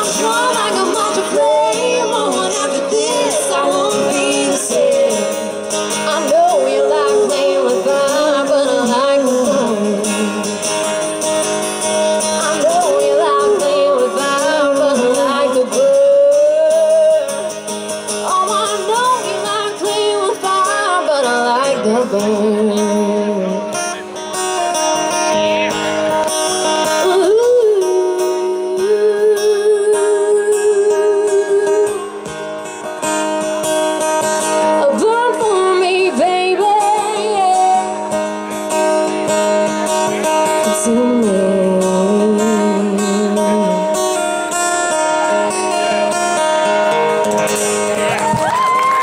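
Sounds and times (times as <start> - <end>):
woman singing: 0.0 - 10.7, 12.2 - 23.7, 26.8 - 32.4, 34.6 - 38.2, 40.6 - 44.2
strummed acoustic guitar: 0.0 - 48.4.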